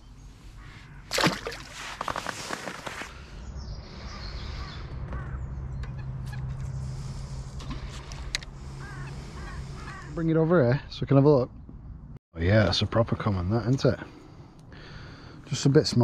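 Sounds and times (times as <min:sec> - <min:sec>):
fish splashing in a net: 0:01.1 - 0:03.0
crows cawing: 0:03.9 - 0:06.4, 0:07.8 - 0:10.2.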